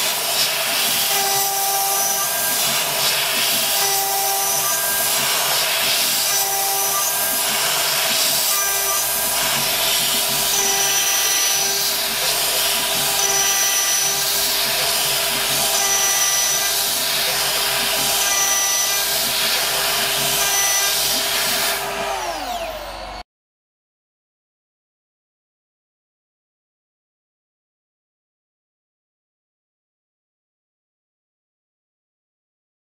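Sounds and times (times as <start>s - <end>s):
router spindle whine and hiss: 0.0s - 23.2s
ringing tone of cutting: 1.0s - 23.2s.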